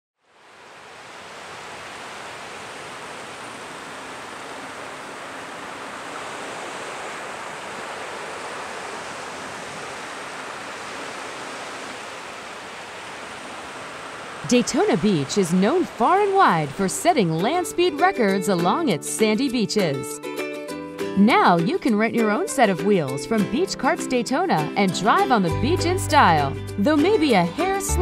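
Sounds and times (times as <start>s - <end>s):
waves washing on sandy beach: 0.3s - 17.6s.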